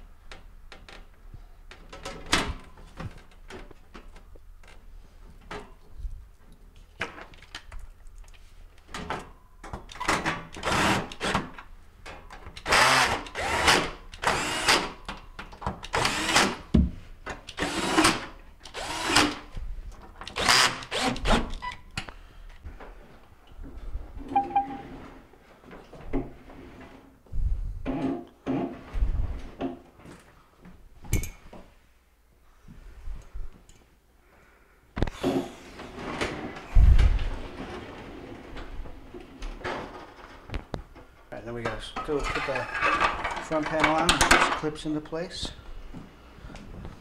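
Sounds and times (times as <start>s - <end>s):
cordless drill whirring: 12.6s - 14.9s, 15.9s - 16.6s, 17.6s - 19.4s, 20.3s - 21.3s.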